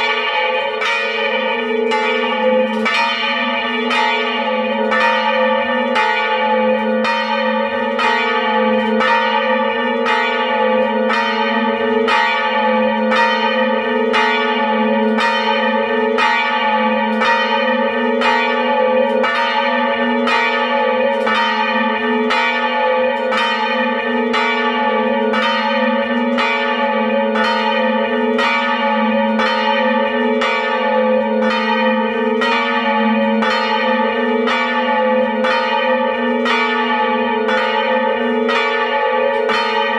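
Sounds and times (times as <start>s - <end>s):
church bells pealing: 0.0s - 39.9s.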